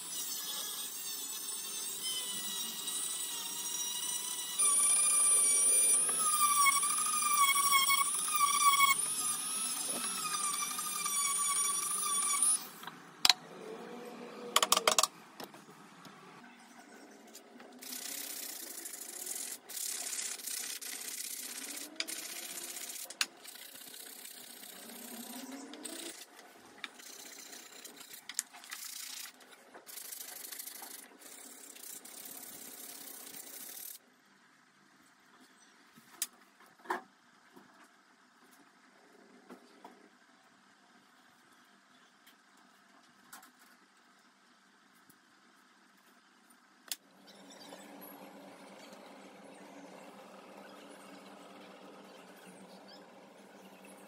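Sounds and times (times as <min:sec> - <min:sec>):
rotary tool whining: 0:00.0 - 0:15.1, 0:17.8 - 0:34.0, 0:47.1 - 0:54.0.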